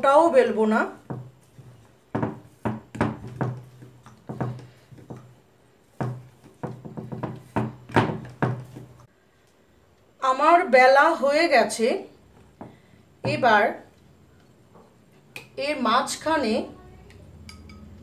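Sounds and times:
rolling pin knocking on wooden board: 1.0s - 9.0s.

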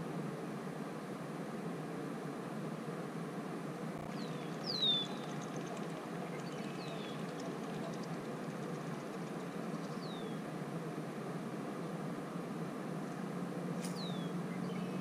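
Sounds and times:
low outdoor background rush: 0.0s - 15.0s
whistled bird calls: 4.2s - 8.2s, 9.7s - 10.4s, 13.9s - 15.0s.

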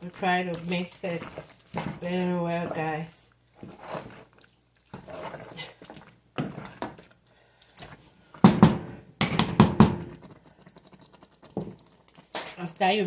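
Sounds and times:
wooden spoon stirring thick stew: 0.0s - 7.2s.

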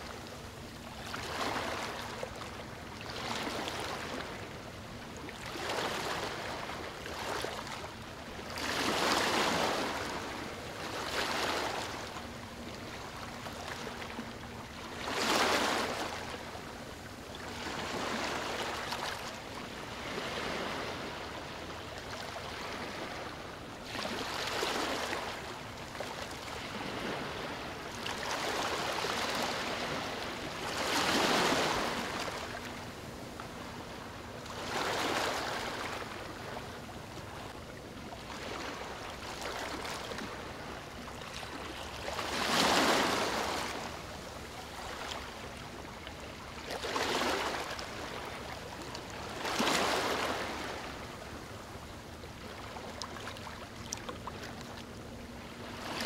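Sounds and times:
ocean surf on beach: 19.8s - 25.6s, 26.5s - 33.0s, 38.3s - 45.3s.

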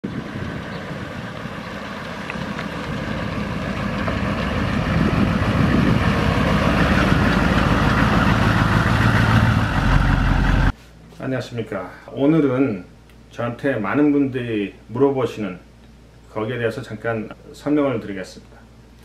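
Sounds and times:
truck diesel engine running: 0.2s - 10.7s.

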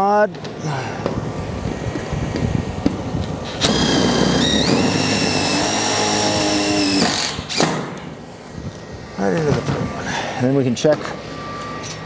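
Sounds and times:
impact driver driving screw: 3.5s - 7.9s.

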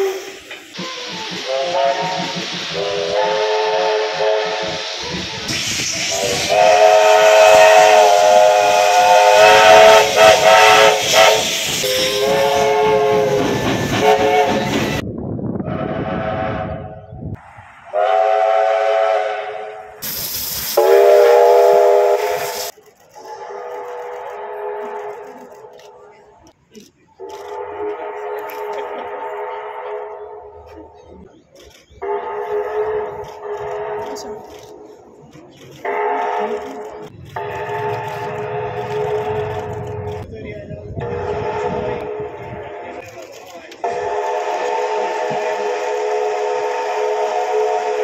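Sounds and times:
steam hissing: 0.0s - 15.0s, 17.4s - 23.4s, 43.8s - 48.0s
steam locomotive whistle blasts: 0.0s - 15.0s, 15.6s - 17.1s, 17.9s - 25.7s, 37.3s - 40.0s, 41.0s - 42.6s, 43.8s - 48.0s.

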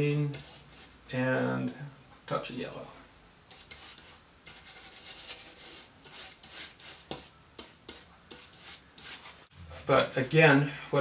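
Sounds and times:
paintbrush scrubbing on canvas: 0.3s - 1.0s, 3.5s - 9.5s.

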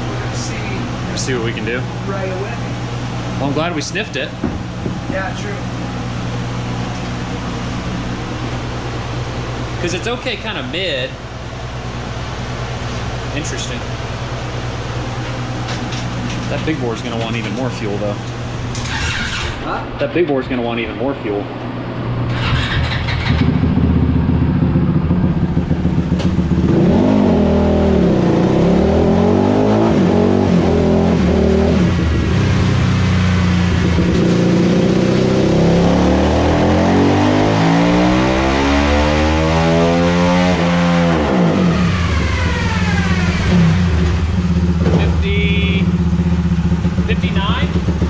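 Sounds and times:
engine revving: 16.4s - 19.7s, 22.3s - 48.0s.

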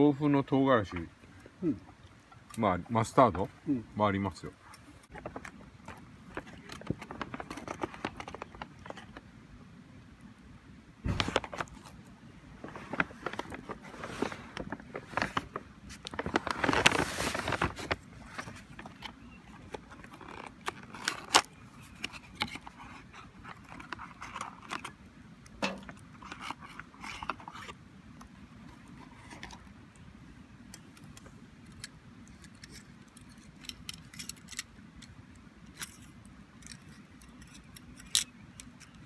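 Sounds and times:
cardboard box rustling: 12.6s - 24.9s.

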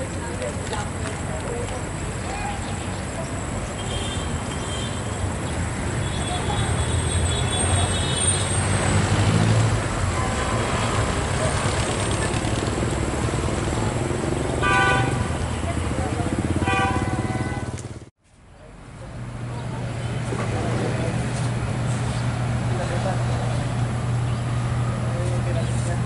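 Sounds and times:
traffic rumble: 0.0s - 26.0s
passing vehicle engine: 5.3s - 18.1s.

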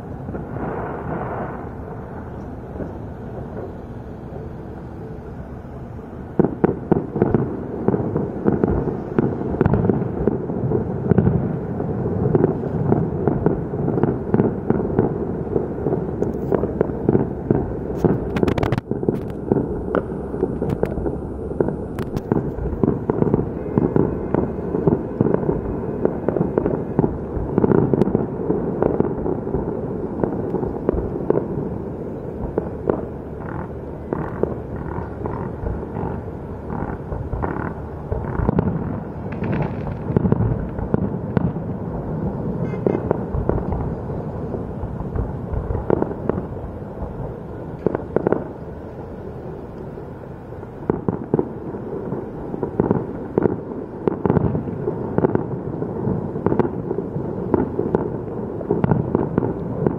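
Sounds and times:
low rumble: 0.0s - 49.8s
fireworks bangs and crackles: 0.0s - 59.9s.

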